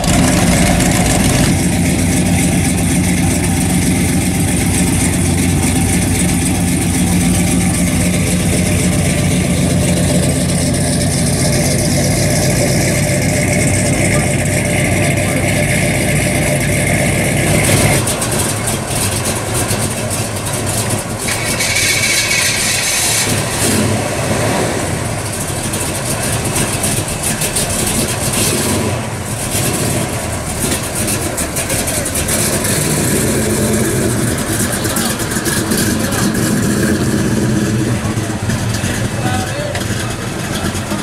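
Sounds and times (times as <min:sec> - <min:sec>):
car engines driving off slowly: 0:00.0 - 0:41.0
people talking: 0:00.3 - 0:20.2, 0:31.4 - 0:41.0.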